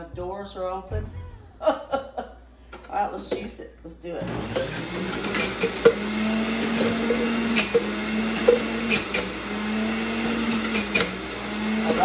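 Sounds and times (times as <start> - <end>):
electric juicer motor hum: 4.2 - 12.0
juicer grinding: 4.2 - 12.0.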